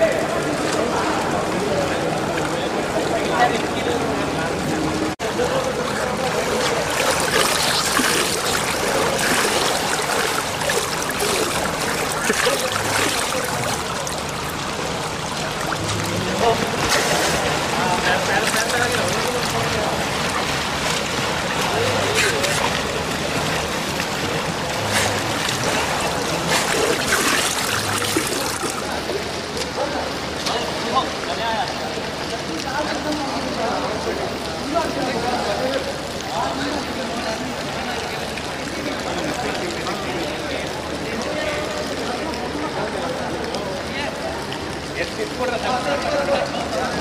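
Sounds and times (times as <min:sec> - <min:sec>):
pool water trickling into gutter: 0:00.0 - 0:47.0
swimmers splashing: 0:05.3 - 0:29.4.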